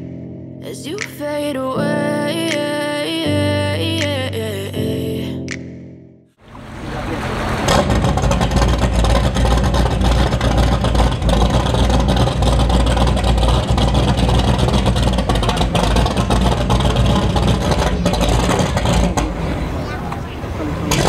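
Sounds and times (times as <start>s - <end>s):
boat engines idling: 6.4s - 21.0s.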